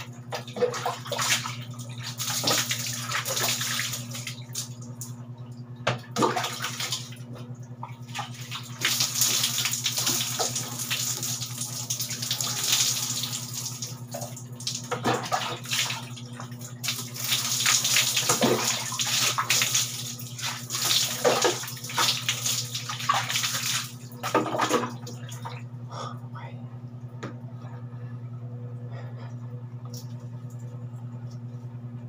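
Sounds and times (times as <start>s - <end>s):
water poured splashing on concrete: 8.8s - 11.5s.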